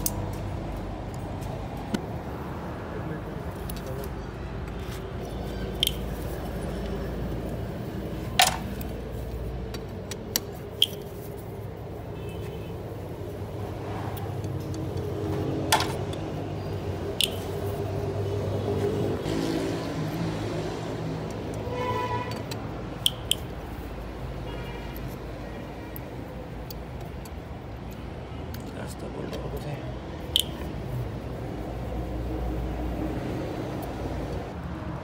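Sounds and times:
metallic tool clicks: 0.0s - 0.5s, 5.8s - 6.2s, 17.1s - 17.6s, 22.3s - 23.6s.

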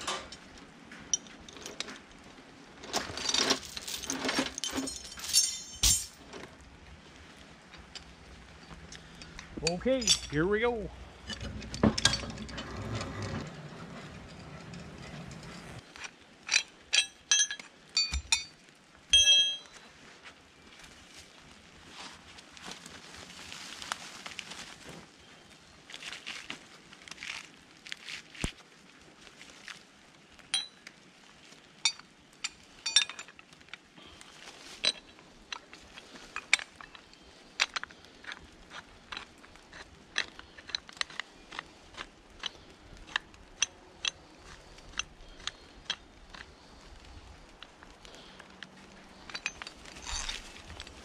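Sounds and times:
metal hardware clinking: 3.0s - 6.2s, 9.2s - 10.6s, 11.2s - 13.4s, 16.5s - 18.5s, 19.1s - 19.8s, 31.9s - 33.3s, 49.2s - 50.4s
low steady rumble: 3.6s - 15.8s.

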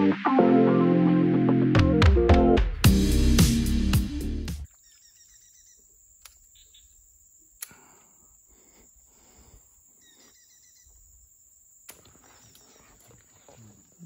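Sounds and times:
high insect hum: 4.6s - 14.0s
light clicks: 6.2s - 6.5s.

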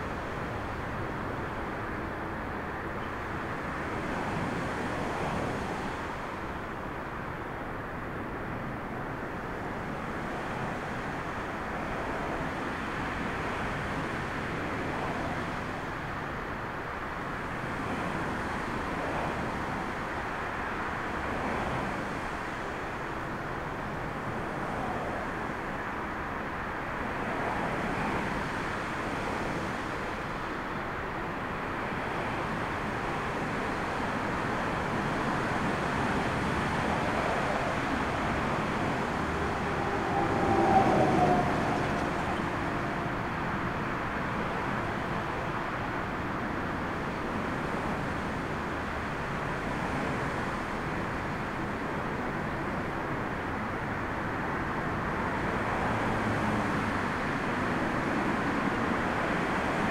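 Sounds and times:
distant jet engines: 31.2s - 53.6s
storm wind rushing: 36.7s - 45.0s.

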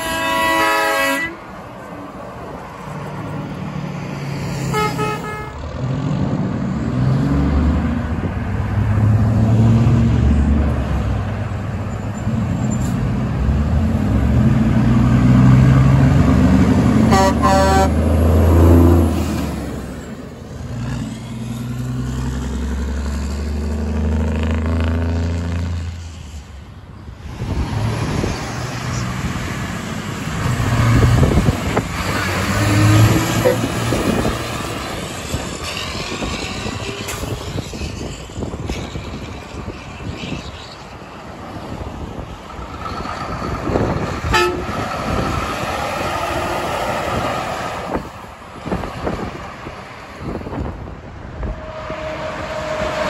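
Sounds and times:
truck air horn blasts: 0.0s - 1.5s, 4.6s - 5.6s, 17.0s - 18.0s, 33.1s - 33.7s, 44.2s - 44.8s
traffic rumble: 0.0s - 53.0s
diesel engine rumble: 4.7s - 53.0s.

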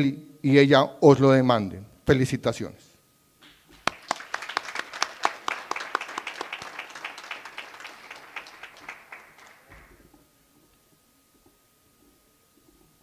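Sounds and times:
audience applause in a hall: 3.4s - 10.1s.

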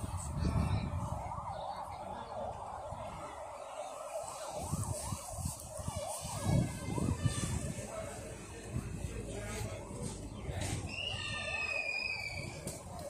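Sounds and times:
wind on microphone: 0.0s - 3.4s, 4.3s - 11.5s
siren yelping: 0.0s - 7.8s, 11.1s - 13.0s.

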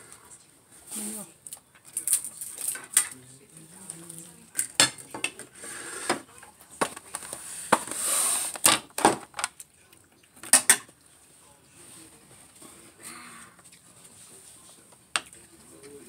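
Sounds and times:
cutlery and dishes clinking: 1.8s - 3.2s, 4.5s - 8.0s, 10.4s - 11.0s
fork scraping a platter: 5.4s - 6.2s, 7.2s - 8.7s.

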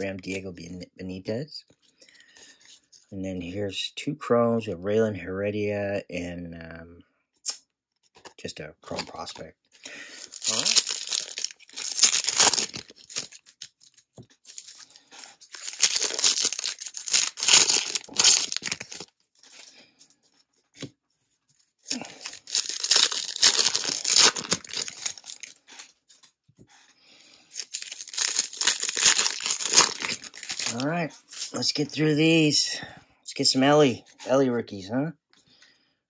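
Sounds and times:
foil wrappers tearing and crinkling: 10.0s - 19.1s, 21.9s - 25.6s, 27.5s - 31.6s.

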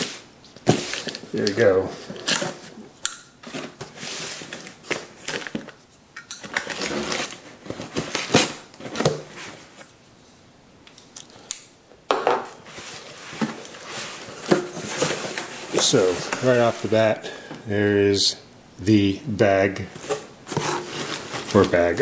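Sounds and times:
cardboard flaps scraping and rustling: 12.7s - 17.0s, 19.9s - 22.0s.

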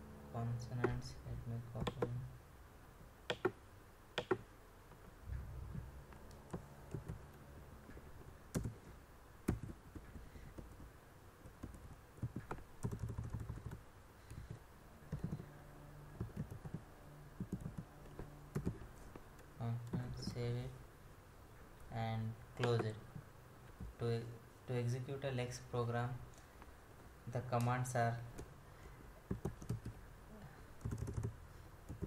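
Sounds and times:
computer mouse clicks: 3.3s - 3.6s, 4.2s - 4.4s
typing on keyboard: 4.2s - 4.4s, 6.5s - 7.2s, 8.5s - 8.8s, 9.5s - 15.4s, 16.2s - 16.8s, 17.4s - 17.9s, 18.5s - 18.8s, 29.3s - 30.0s, 30.8s - 32.0s.

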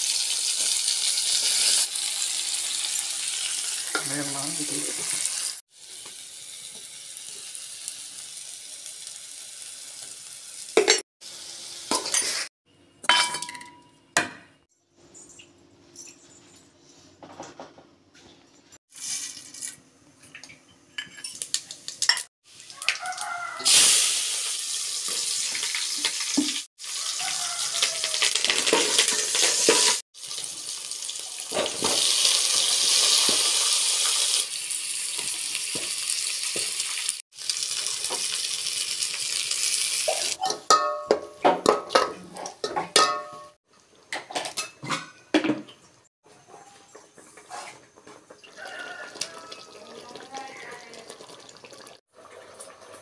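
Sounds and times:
vegetables frying in oil: 0.0s - 12.5s, 21.4s - 40.4s, 48.3s - 53.0s
ladle scraping and clinking pot: 28.5s - 30.0s, 40.1s - 45.3s.

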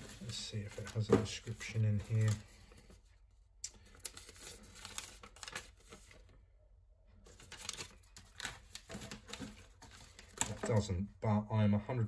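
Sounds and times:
packaging rustling and crinkling: 0.0s - 3.1s, 3.7s - 6.4s, 7.2s - 10.8s.

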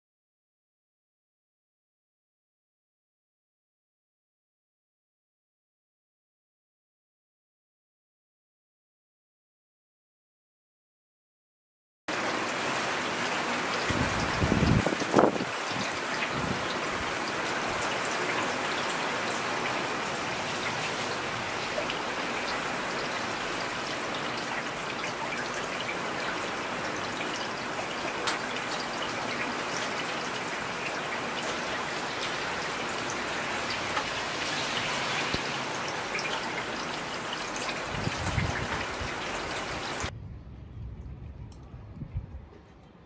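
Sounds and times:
heavy rain: 12.1s - 42.0s
low rumble: 40.1s - 43.0s.

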